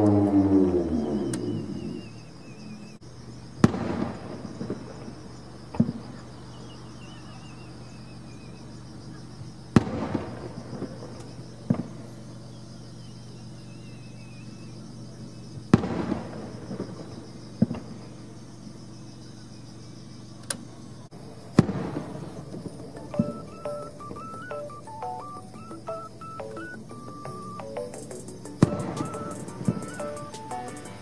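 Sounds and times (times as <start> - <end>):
distant fireworks booming: 3.5 - 6.4, 9.7 - 12.4, 15.6 - 18.3, 21.1 - 31.0.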